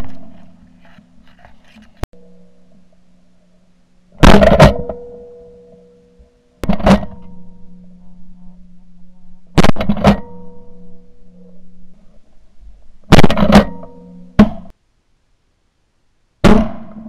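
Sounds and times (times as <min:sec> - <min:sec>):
faint steady hum: 0:00.0 - 0:17.0
shotgun blasts: 0:16.4 - 0:17.0.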